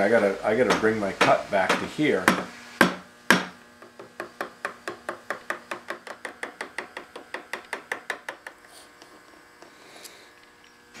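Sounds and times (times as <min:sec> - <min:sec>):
hammer tapping a chisel into wood: 0:00.6 - 0:08.6.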